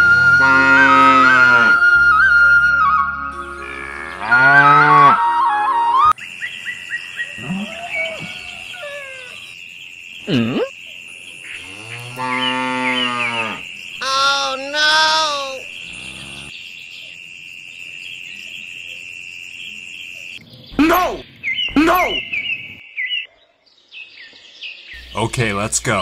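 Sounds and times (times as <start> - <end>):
cows mooing: 0.1 - 1.8, 3.4 - 5.4, 11.6 - 16.5
high insect-like drone: 3.4 - 5.2, 11.4 - 16.6
bird chirps: 19.6 - 25.3.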